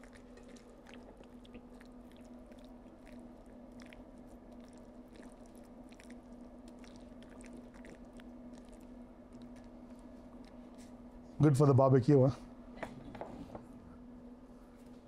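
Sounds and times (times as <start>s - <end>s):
wet squelching of meat: 0.0s - 11.2s
steady low hum: 0.0s - 15.0s.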